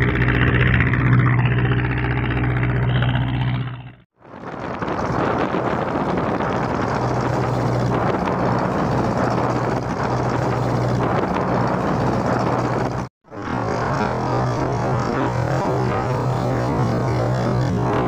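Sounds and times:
boat diesel engine humming: 0.0 - 18.0
bow wave rushing and spray: 4.3 - 18.0.

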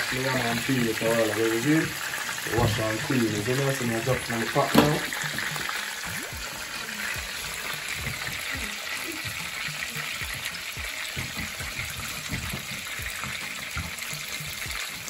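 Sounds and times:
fish frying in oil: 0.0 - 15.0.

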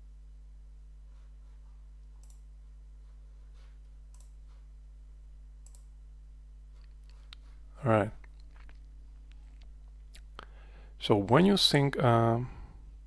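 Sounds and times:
low electrical hum: 0.0 - 13.0
computer mouse clicks: 2.2 - 2.4, 4.1 - 4.4, 5.6 - 5.9.

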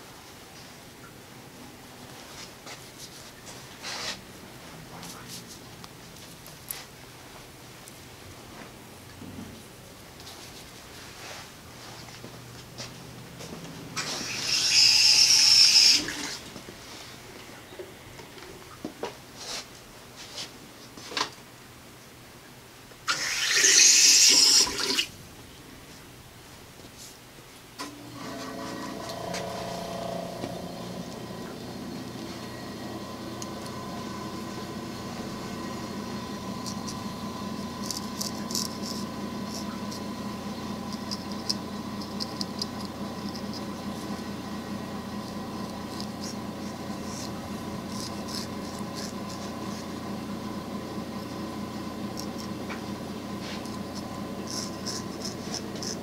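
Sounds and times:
straight razor scraping hair: 14.0 - 16.3, 33.4 - 50.4, 53.4 - 56.0
water running from a tap: 14.2 - 16.4, 23.1 - 25.1.

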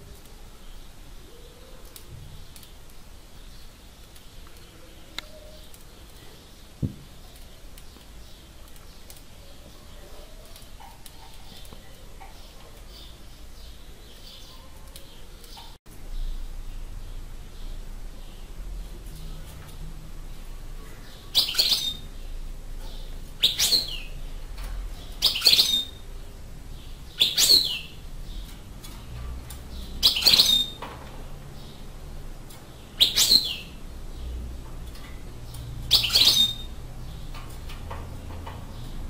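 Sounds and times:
bird chirping calls: 20.7 - 24.2, 24.9 - 39.0.

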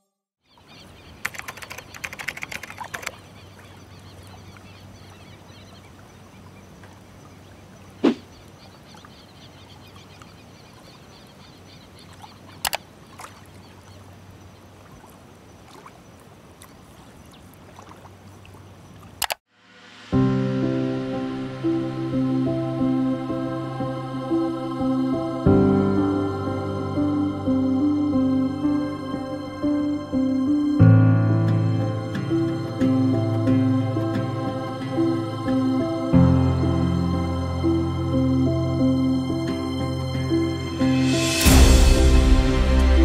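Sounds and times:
keyboard typing: 1.2 - 3.2
sharp keyboard clicks: 1.2 - 3.2.

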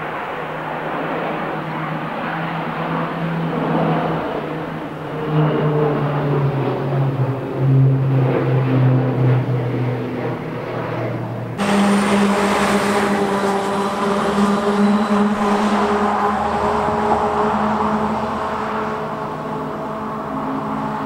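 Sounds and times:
propeller engines droning overhead: 0.0 - 21.0
tyres on road: 0.2 - 21.0
fire engine running: 9.3 - 21.0.

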